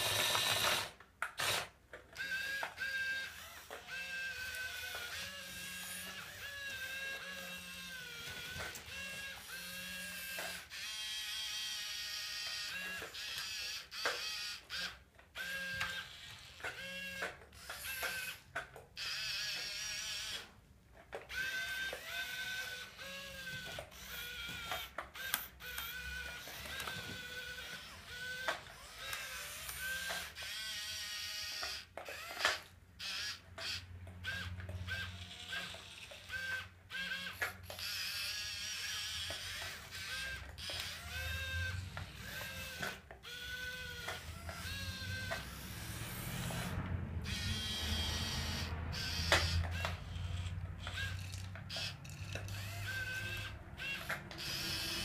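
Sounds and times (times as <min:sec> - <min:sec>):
electric motors whining: 0:00.0 - 0:20.6, 0:21.3 - 0:55.0.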